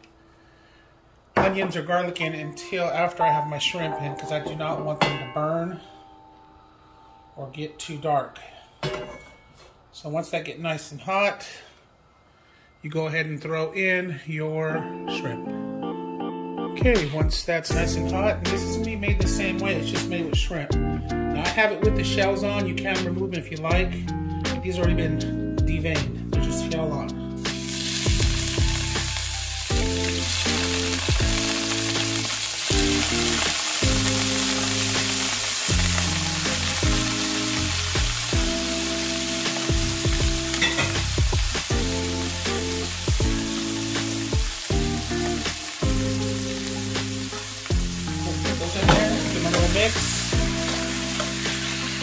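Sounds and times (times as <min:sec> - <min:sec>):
shrimp sizzling in oil: 0:27.4 - 0:52.0.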